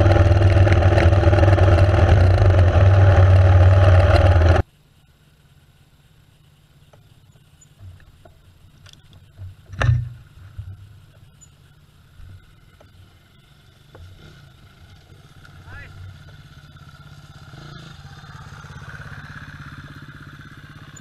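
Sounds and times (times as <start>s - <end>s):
motorcycle engine running: 0.0s - 21.0s
short thump: 9.4s - 10.8s.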